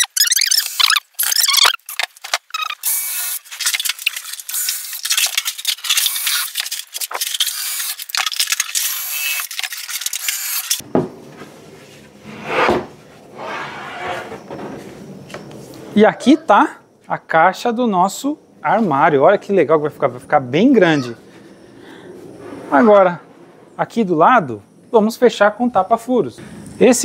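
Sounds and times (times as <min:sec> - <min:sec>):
loud scrape: 0:11.7 - 0:14.5.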